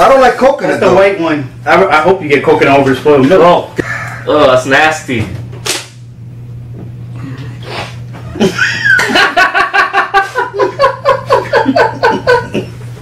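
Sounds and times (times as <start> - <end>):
men laughing hard: 8.2 - 13.0.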